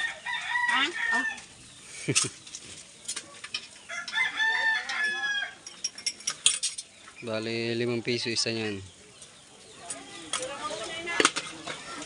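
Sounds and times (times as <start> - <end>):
rooster crowing: 0.0 - 1.4, 3.9 - 5.6.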